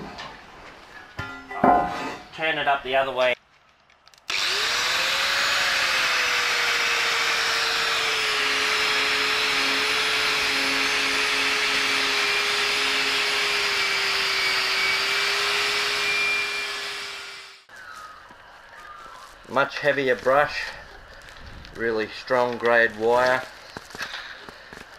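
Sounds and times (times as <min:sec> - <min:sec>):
angle grinder wire brush on steel: 0:04.4 - 0:17.7.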